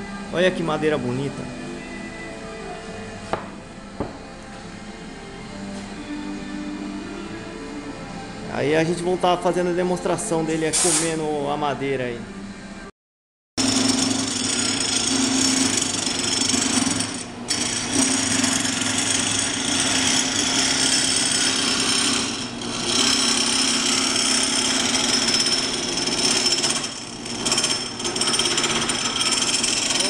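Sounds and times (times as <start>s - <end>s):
lathe motor hum: 13.6s - 30.0s
tool scraping spinning wood: 13.6s - 30.0s.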